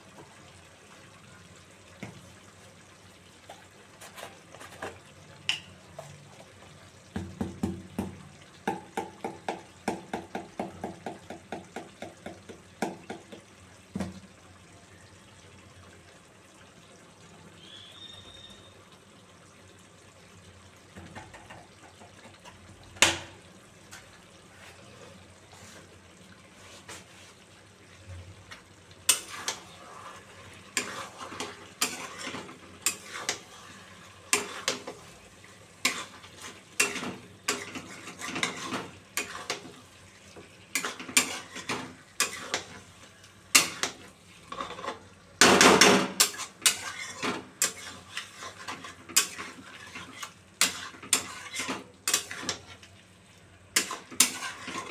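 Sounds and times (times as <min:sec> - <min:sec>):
spatula scraping metal pan: 0:29.1 - 0:35.2, 0:35.8 - 0:39.8, 0:40.7 - 0:42.9, 0:43.5 - 0:45.1, 0:45.8 - 0:52.8, 0:53.8 - 0:54.9.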